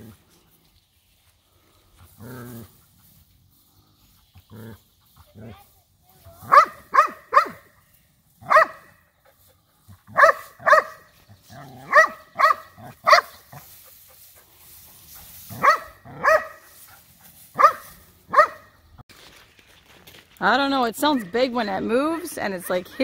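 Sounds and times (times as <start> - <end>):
dog barking: 6.4 - 7.7, 8.4 - 8.9, 10.1 - 11.1, 11.8 - 13.4, 15.5 - 16.7, 17.6 - 18.7.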